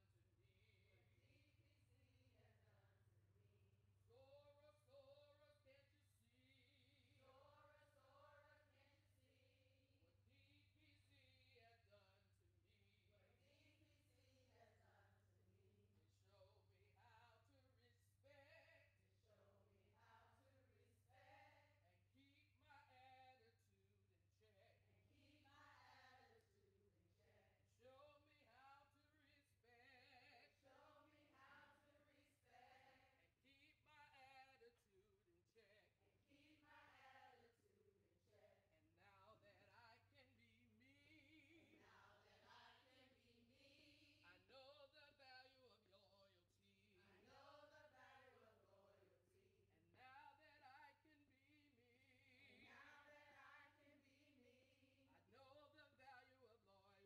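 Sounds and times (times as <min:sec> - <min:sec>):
women singing a chant in unison: 0:04.0 - 0:12.2, 0:12.8 - 0:23.6, 0:24.4 - 0:34.9, 0:35.6 - 0:57.0
women singing together: 0:25.4 - 0:26.5, 0:27.9 - 0:34.7, 0:35.6 - 0:37.7, 0:40.9 - 0:49.3, 0:52.1 - 0:56.4.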